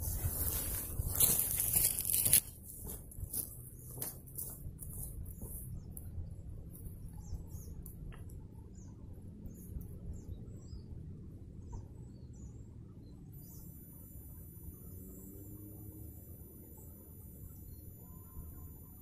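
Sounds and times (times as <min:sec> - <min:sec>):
low background rumble: 0:00.0 - 0:19.0
small birds chirping: 0:00.0 - 0:19.0
high-pitched insect trill: 0:13.4 - 0:19.0.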